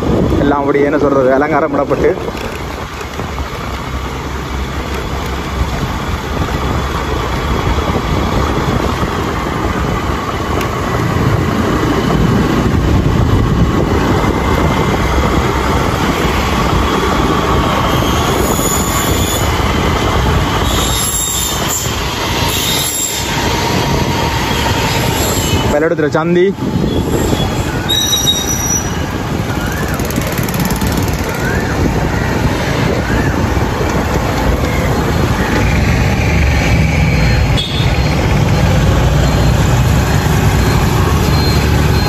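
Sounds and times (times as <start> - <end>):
motorbike running: 0.0 - 25.8, 26.6 - 42.0
wind rush on microphone: 0.0 - 42.0
short high squeals: 26.9 - 29.1.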